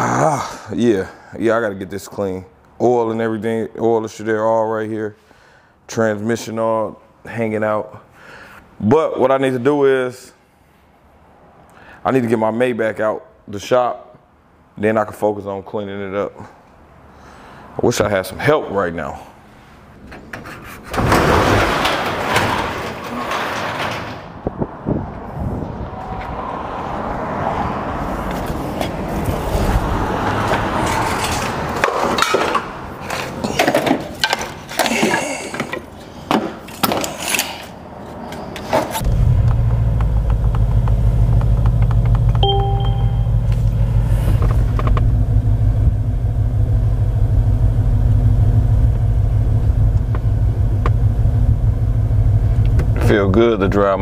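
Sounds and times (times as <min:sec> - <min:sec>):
clunks and clicks: 0:20.1 - 0:24.3, 0:38.6 - 0:43.7
car engine idling: 0:39.0 - 0:54.0
short electronic chime: 0:42.4 - 0:43.5.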